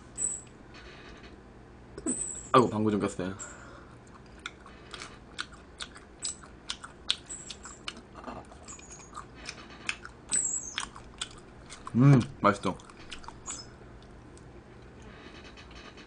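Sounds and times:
person chewing: 3.8 - 15.0.

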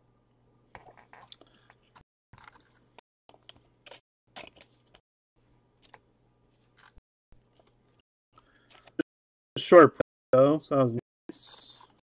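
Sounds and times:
cards crinkling and rustling: 2.4 - 5.0.

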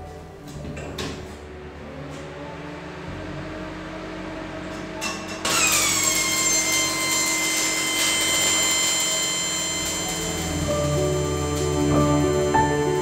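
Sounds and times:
high-pitched welder whine: 1.9 - 13.0
welding arc strike scratch: 5.0 - 13.0
welding arc hissing: 5.5 - 13.0.

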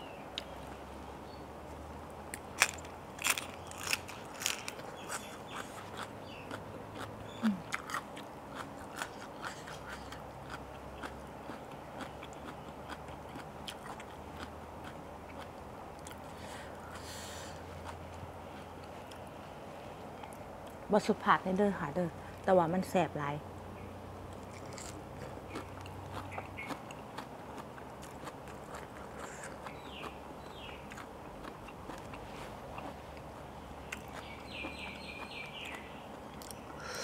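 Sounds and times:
crunchy chewing: 2.3 - 19.3, 24.3 - 36.7.

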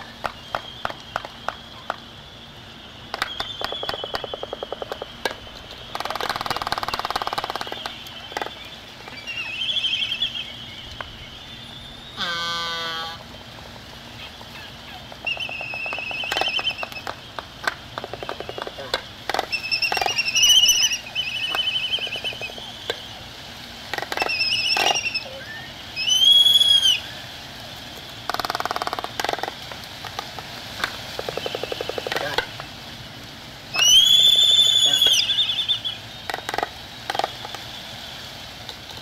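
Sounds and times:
albatross bill clacks: 0.0 - 2.1, 3.1 - 9.2, 14.9 - 23.0, 23.9 - 25.1, 28.0 - 32.7, 36.3 - 37.7.

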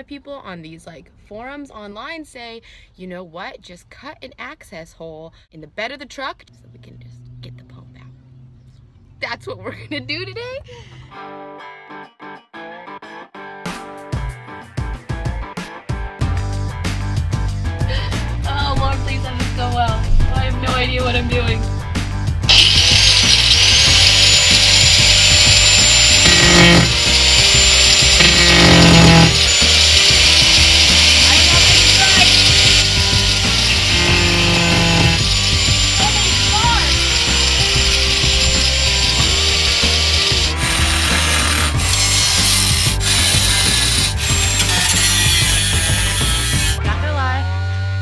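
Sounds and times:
background music with a beat: 13.5 - 22.5
angle grinder cutting metal: 22.5 - 46.8.

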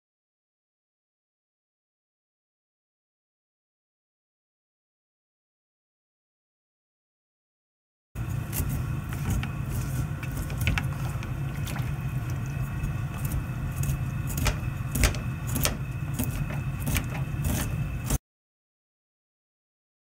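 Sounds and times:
low mechanical hum: 8.2 - 18.2.

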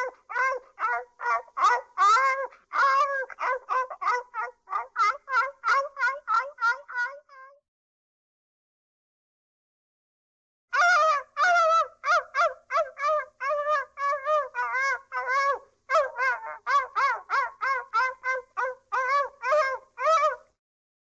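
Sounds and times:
cartoon fowl calls: 10.8 - 13.2.

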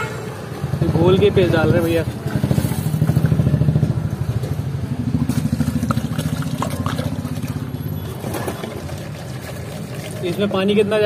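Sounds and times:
water pouring into plastic jar: 5.3 - 11.0.

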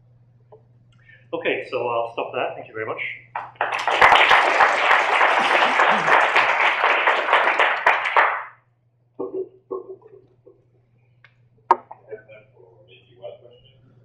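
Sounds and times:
audience applauding: 3.3 - 8.6.

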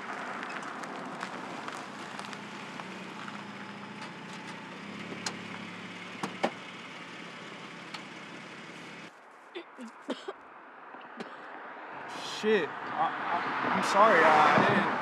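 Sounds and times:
car idling: 0.0 - 9.1.

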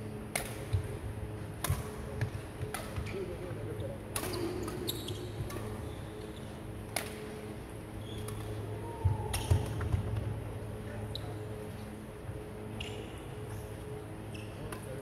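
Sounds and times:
rackets striking shuttlecock: 0.2 - 0.9, 1.6 - 3.2, 4.1 - 5.8, 6.9 - 7.5
shoe squeak: 4.8 - 6.5, 12.8 - 13.2, 14.2 - 14.6.

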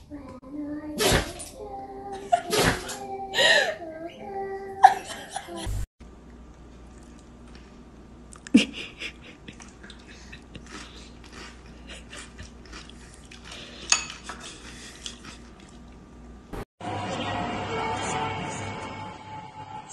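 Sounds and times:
chewing: 6.5 - 8.6, 9.4 - 16.1.

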